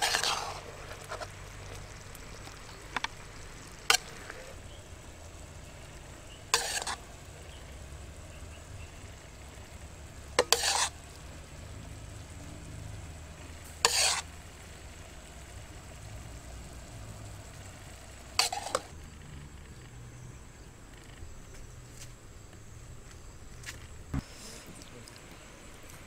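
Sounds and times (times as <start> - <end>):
sauce being spooned: 10.4 - 11.0, 13.8 - 14.3.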